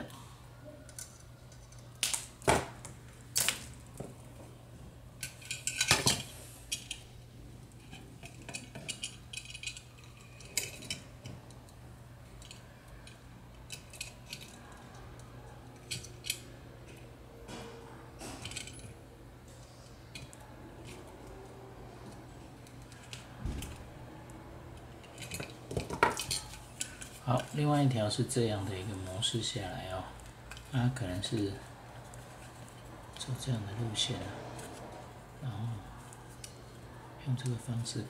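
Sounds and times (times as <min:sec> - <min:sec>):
metal tools clinking: 0:07.9 - 0:11.3, 0:18.2 - 0:18.9, 0:25.0 - 0:27.5.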